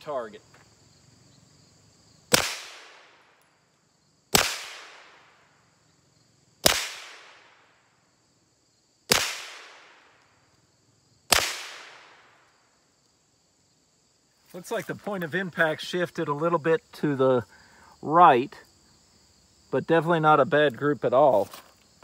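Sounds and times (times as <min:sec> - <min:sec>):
crickets chirping: 0:00.0 - 0:22.0
suppressed pistol shots: 0:02.3 - 0:03.2, 0:04.3 - 0:05.3, 0:06.6 - 0:07.6, 0:09.1 - 0:10.1, 0:11.3 - 0:12.3.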